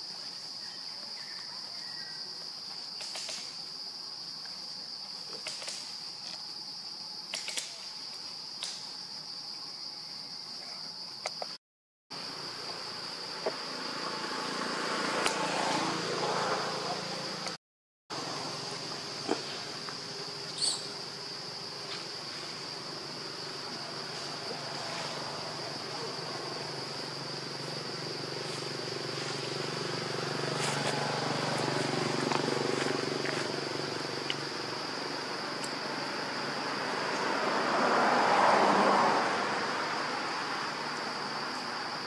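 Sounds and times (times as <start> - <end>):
high-pitched insect drone: 12.2 - 42.0.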